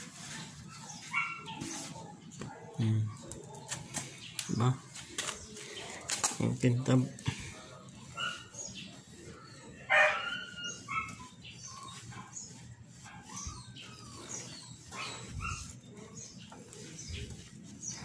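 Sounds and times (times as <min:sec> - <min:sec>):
dog yelping: 0:00.9 - 0:01.7, 0:09.4 - 0:15.8.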